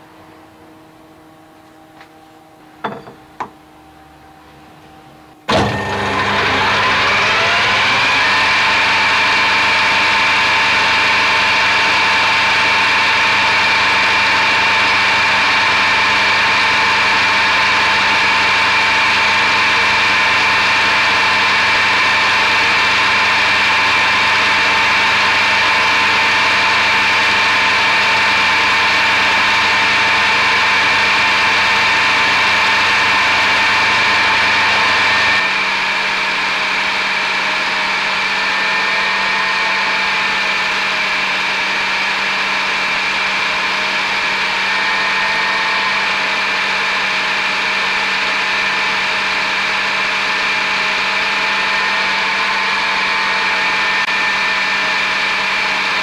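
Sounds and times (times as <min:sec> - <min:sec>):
metal lathe whining: 0:05.2 - 0:56.0.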